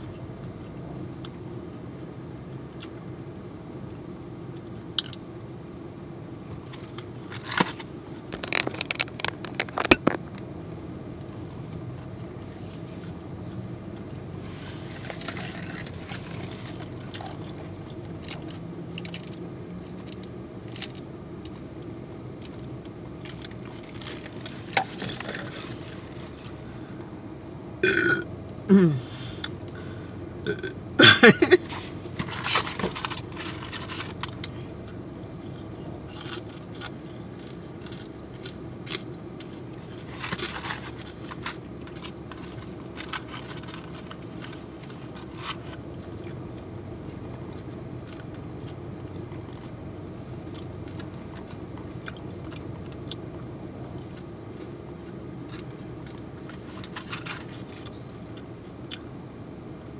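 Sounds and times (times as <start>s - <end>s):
chewing and mouth clicks: 17.0s - 19.4s, 50.4s - 56.2s
woman burping: 27.8s - 29.1s, 30.4s - 31.7s.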